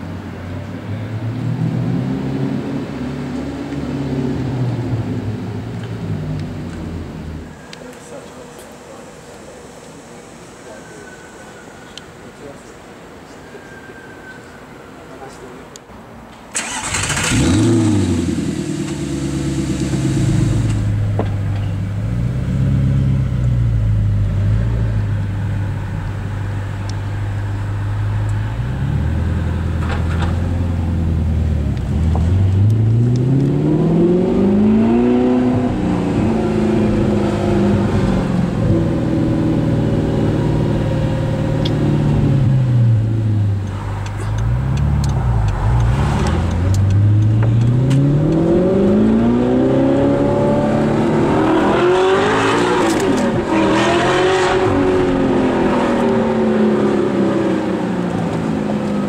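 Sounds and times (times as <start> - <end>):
sports car engine revving: 16.6 - 21.2, 27.4 - 59.0.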